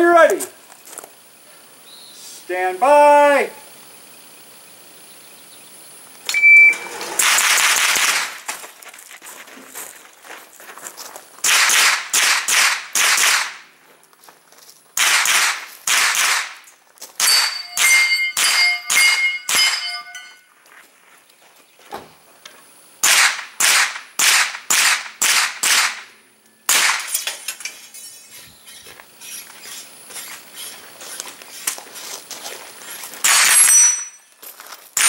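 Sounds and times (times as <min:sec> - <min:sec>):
shot timer beep: 0:06.3 - 0:06.9
carbine gunshots: 0:07.1 - 0:08.5, 0:11.4 - 0:13.6, 0:15.0 - 0:16.6, 0:23.0 - 0:27.2, 0:33.2 - 0:34.0
steel targets ringing: 0:17.2 - 0:20.5, 0:33.2 - 0:34.3.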